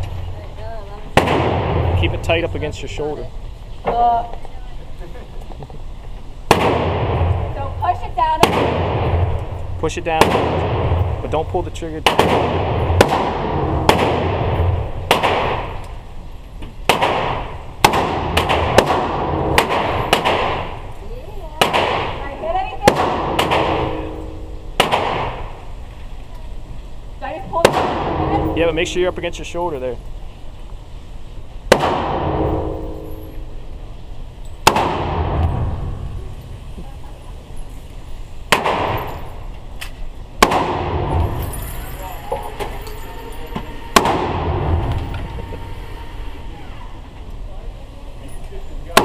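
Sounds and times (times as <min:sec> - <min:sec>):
gunshots echoing indoors: 0:01.2 - 0:02.2, 0:06.5 - 0:07.5, 0:08.4 - 0:09.4, 0:10.1 - 0:11.2, 0:12.0 - 0:15.8, 0:16.9 - 0:20.8, 0:21.6 - 0:22.2, 0:22.8 - 0:25.6, 0:31.7 - 0:33.0, 0:34.6 - 0:36.2, 0:40.4 - 0:41.5, 0:44.0 - 0:45.0.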